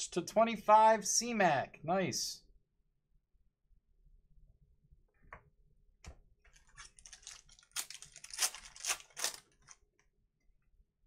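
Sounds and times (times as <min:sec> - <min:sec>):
foil wrapper crinkling: 0:06.5 - 0:09.8.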